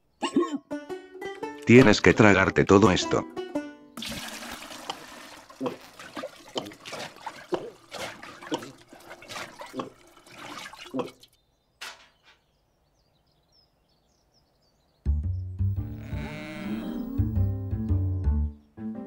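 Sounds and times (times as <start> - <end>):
water gurgling and gulping: 4.0 - 11.4.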